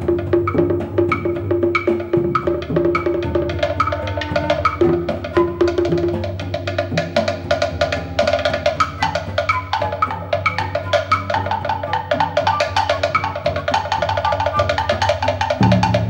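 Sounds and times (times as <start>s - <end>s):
drum struck with sticks: 0.0s - 9.4s, 15.4s - 16.0s.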